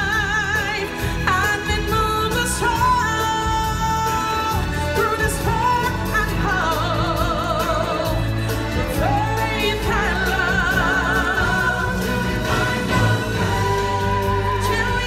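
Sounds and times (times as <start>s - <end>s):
singers holding wavering notes: 6.9s - 15.0s.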